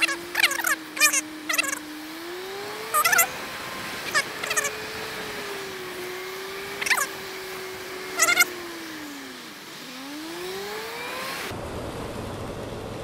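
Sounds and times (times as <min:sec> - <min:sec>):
short high squeaks: 0:00.0 - 0:01.8, 0:02.9 - 0:03.4, 0:04.1 - 0:04.9, 0:06.7 - 0:07.2, 0:08.1 - 0:08.5
motorcycle engine running: 0:00.0 - 0:13.0
wind and wet-road noise: 0:00.0 - 0:13.0.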